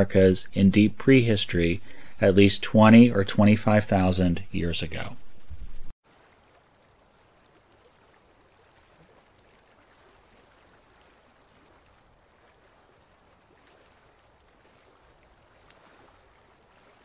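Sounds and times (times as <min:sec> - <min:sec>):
faint steady hiss: 0:00.0 - 0:08.0.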